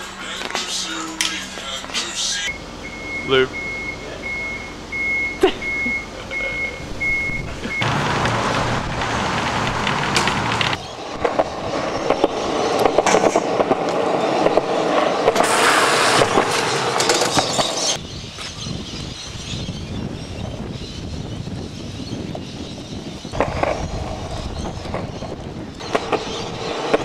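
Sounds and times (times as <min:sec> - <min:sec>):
bike scraping on concrete ledges: 0:07.8 - 0:18.0, 0:23.3 - 0:27.0
bike tyre and chain noise: 0:07.8 - 0:18.6.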